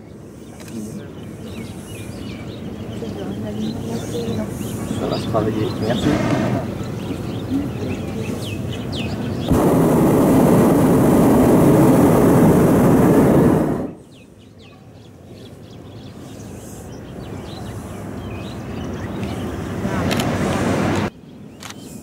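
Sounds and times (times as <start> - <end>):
birds chirping faintly: 0.0 - 9.5, 12.7 - 20.0
propane burner firing: 5.8 - 7.0, 9.4 - 14.0.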